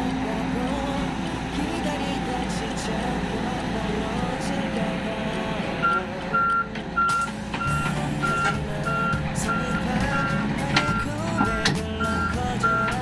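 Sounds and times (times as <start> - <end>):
diesel engines running: 0.0 - 13.0
backup alarm beeping: 5.8 - 13.0.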